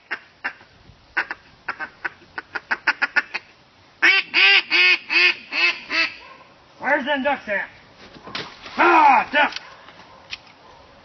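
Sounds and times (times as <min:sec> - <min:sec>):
duck call clucks and quacks: 0:00.0 - 0:06.3.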